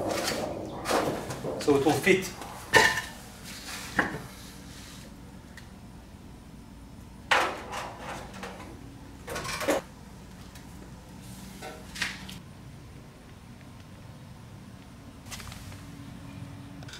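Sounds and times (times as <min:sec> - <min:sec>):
sheet metal rattling: 0:00.0 - 0:03.0.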